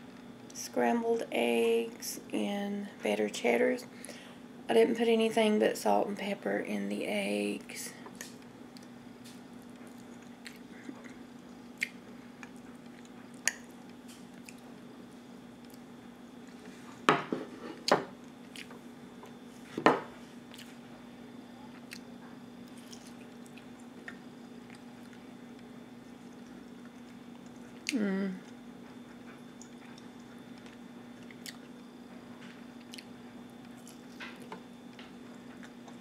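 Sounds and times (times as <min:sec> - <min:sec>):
steady low hum: 0:00.0 - 0:36.0
quiet chewing: 0:08.1 - 0:14.8, 0:15.6 - 0:16.7, 0:17.8 - 0:19.4, 0:20.5 - 0:20.9, 0:21.7 - 0:31.8, 0:32.4 - 0:36.0.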